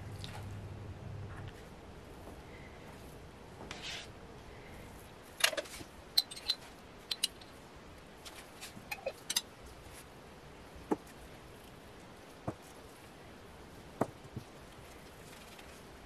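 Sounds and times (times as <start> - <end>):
metal spoon clinking: 8.9 - 9.5.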